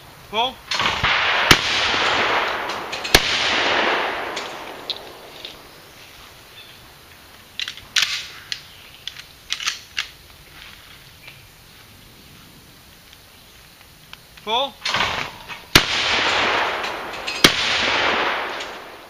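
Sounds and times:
shotgun shot with echo: 0:00.7 - 0:05.3, 0:14.9 - 0:19.0
gun mechanism clicks: 0:07.6 - 0:10.2.

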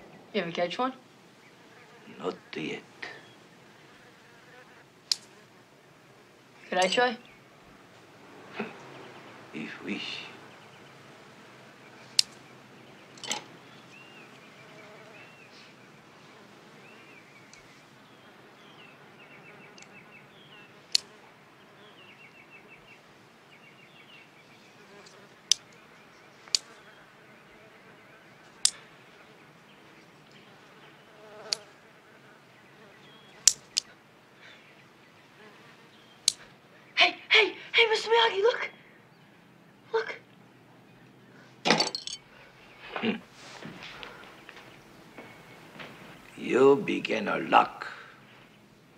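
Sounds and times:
housefly buzzing: 0:01.4 - 0:07.0, 0:10.4 - 0:33.9, 0:35.3 - 0:36.5.

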